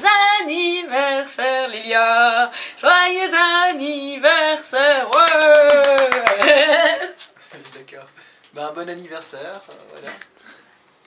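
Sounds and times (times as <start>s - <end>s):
hand clapping: 5.1s - 6.8s.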